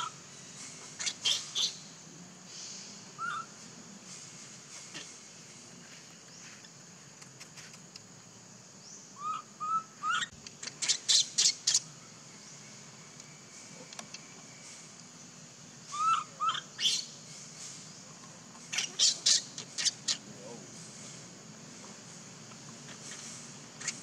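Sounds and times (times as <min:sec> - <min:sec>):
faint steady hiss: 0:00.0 - 0:24.0
high-pitched animal calls: 0:03.2 - 0:03.5, 0:09.2 - 0:11.9, 0:15.9 - 0:17.1, 0:18.7 - 0:20.3.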